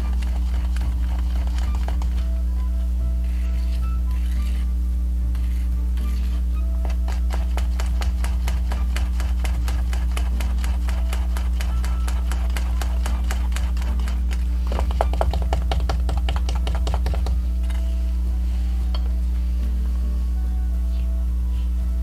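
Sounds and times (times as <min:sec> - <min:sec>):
background music: 0:00.0 - 0:22.0
spatula scraping metal bowl: 0:03.3 - 0:04.7, 0:05.4 - 0:15.2.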